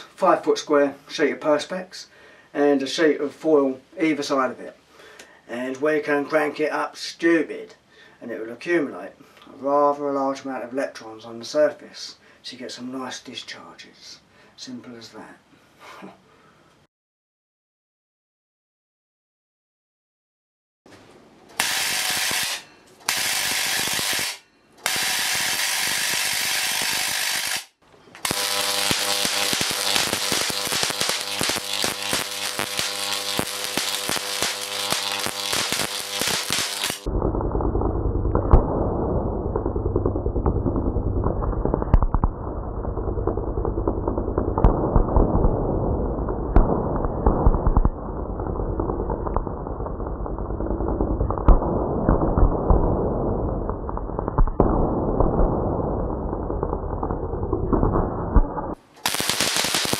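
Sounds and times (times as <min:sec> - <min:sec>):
steady electrical buzz: 0:21.5 - 0:51.8, 0:55.8 - 0:59.9
high-voltage arcs crackling: 0:21.6 - 0:59.9.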